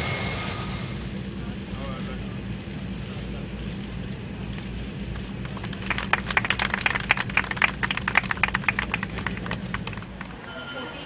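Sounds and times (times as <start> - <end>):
steady low hum: 0.0 - 11.0
quick irregular claps: 5.1 - 10.4.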